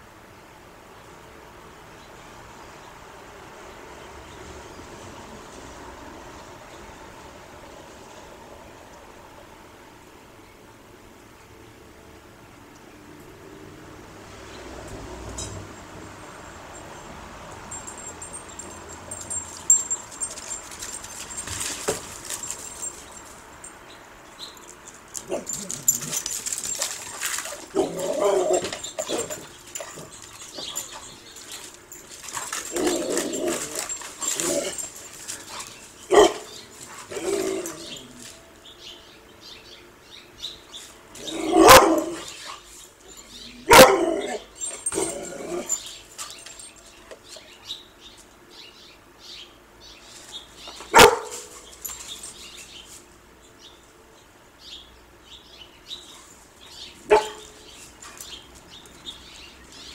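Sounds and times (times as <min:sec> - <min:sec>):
dog barking: 0:36.1 - 0:36.5, 0:41.4 - 0:42.3, 0:43.7 - 0:44.4, 0:50.9 - 0:51.5, 0:57.1 - 0:57.6.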